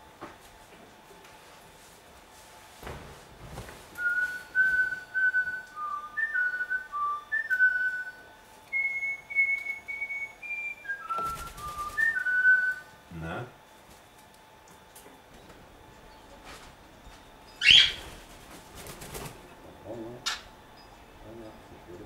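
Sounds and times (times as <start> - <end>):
cockatiel whistling a tune: 4.0 - 12.9, 17.5 - 18.1
wings fluttering: 8.7 - 12.9, 15.3 - 19.6.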